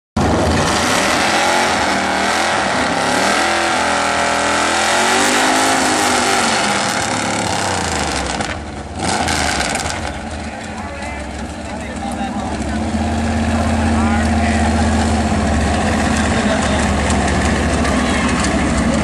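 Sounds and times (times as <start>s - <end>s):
car engine revving hard: 0.2s - 10.5s.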